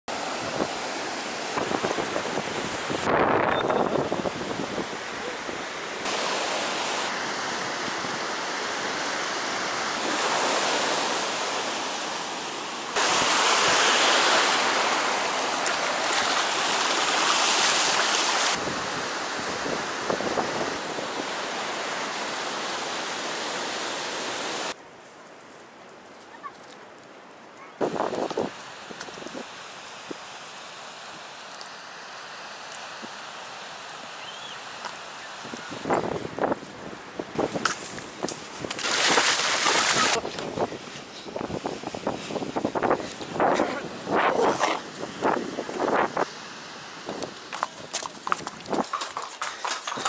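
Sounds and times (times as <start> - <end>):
ocean surf rushing: 0.1 - 24.8, 27.8 - 47.9
wind buffeting microphone: 35.4 - 46.4.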